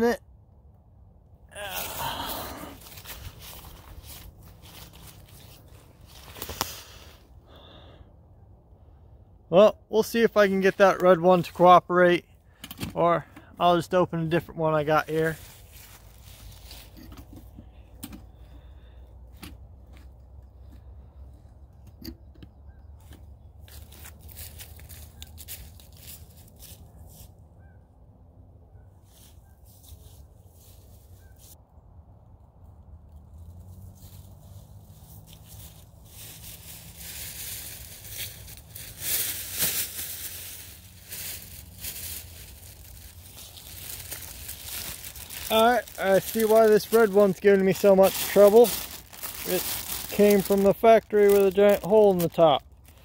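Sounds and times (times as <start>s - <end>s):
paper lantern crinkling: 2.7s - 6.9s, 14.8s - 17.6s, 23.6s - 27.0s, 33.4s - 53.0s.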